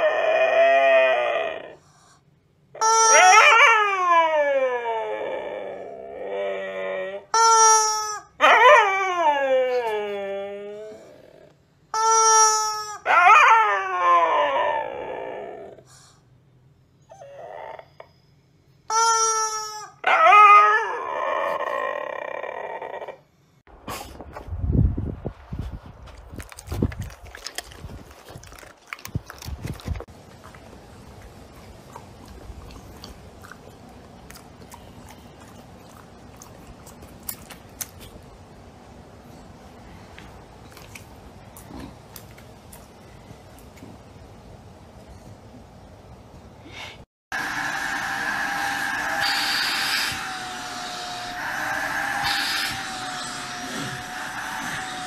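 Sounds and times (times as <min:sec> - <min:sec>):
husky howling: 0:00.0 - 0:01.8, 0:13.0 - 0:15.8, 0:47.4 - 0:55.0
rubber chicken toy squawk: 0:02.8 - 0:03.4, 0:07.4 - 0:08.3, 0:12.0 - 0:13.1, 0:18.9 - 0:20.0
dog chewing food: 0:26.3 - 0:38.2.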